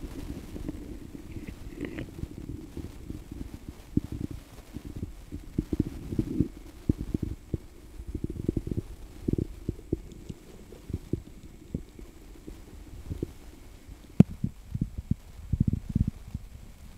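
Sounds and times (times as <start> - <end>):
muffled underwater thuds: 0.0 - 13.4
water movement: 0.0 - 16.9.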